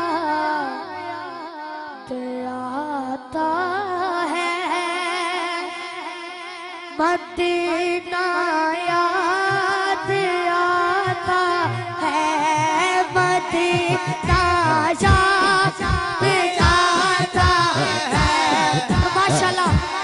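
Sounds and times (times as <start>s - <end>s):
boy singing into a microphone: 0.0s - 20.0s
breaths between phrases: 11.1s - 12.0s.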